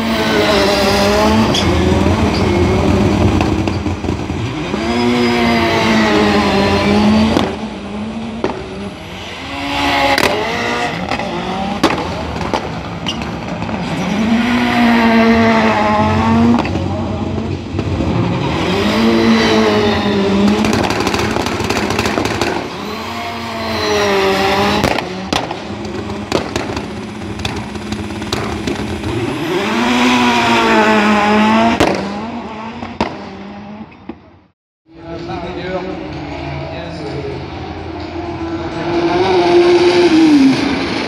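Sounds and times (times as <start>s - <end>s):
race car engines revving: 0.0s - 41.0s
sharp exhaust cracks: 20.3s - 23.1s, 24.7s - 30.6s.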